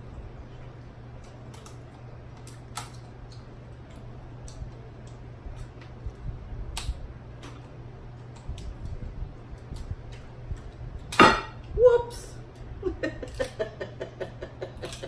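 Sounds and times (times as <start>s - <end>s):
steady low hum: 0.0s - 15.0s
scissors cracking shells: 1.2s - 5.9s, 6.7s - 8.9s, 12.5s - 15.0s.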